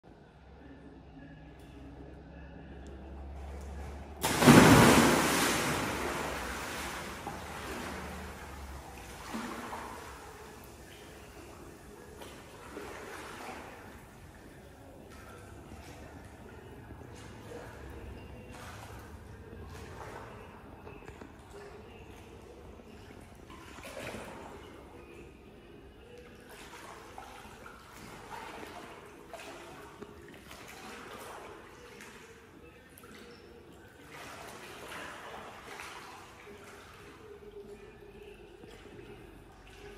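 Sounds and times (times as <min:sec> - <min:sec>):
smaller splashes: 0:03.4 - 0:16.6
small splashes: 0:03.4 - 0:25.1, 0:26.1 - 0:39.9
water sloshing and churning: 0:03.4 - 0:39.9
big splash into pool: 0:04.2 - 0:08.3.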